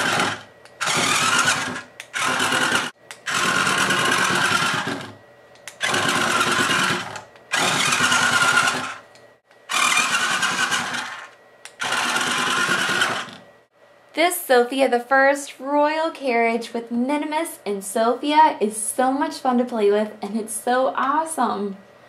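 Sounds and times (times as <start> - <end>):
toy car motor whirring: 0.0 - 5.1, 5.7 - 9.0, 9.7 - 13.4.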